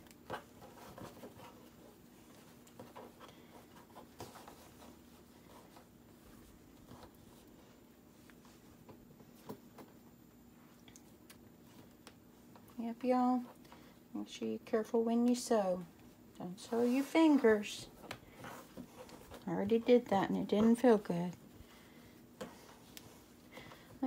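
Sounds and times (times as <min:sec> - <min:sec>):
faint low hum: 0:00.0 - 0:24.0
fabric rustling: 0:16.4 - 0:20.0.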